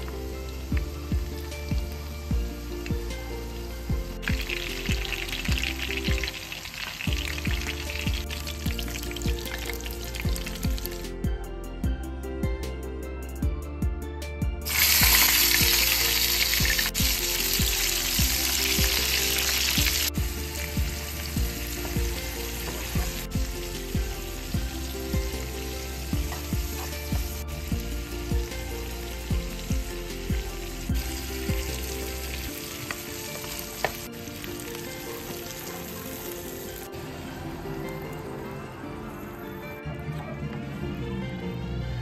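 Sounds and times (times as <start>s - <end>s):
vegetables sizzling in oil: 0.0s - 11.0s, 14.6s - 37.0s.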